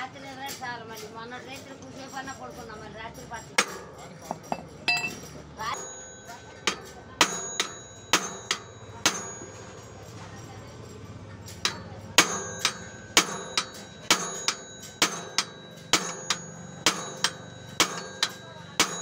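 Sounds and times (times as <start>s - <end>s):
hammer clanking on metal: 3.5s - 5.4s, 6.6s - 9.7s, 11.5s - 19.0s.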